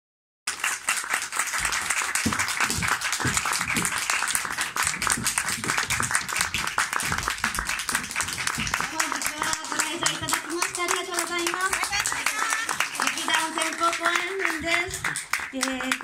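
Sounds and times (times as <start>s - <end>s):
audience applauding: 0.5s - 16.0s
voices: 8.9s - 16.0s.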